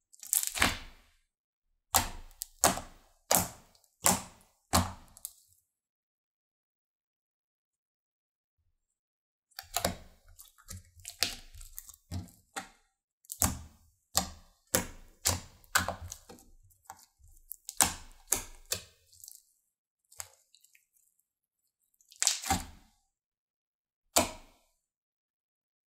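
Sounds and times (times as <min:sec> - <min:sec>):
slime squished with sticky pops: 0:00.1 - 0:01.1, 0:02.0 - 0:05.4, 0:09.6 - 0:12.7, 0:13.3 - 0:19.4, 0:22.1 - 0:22.8.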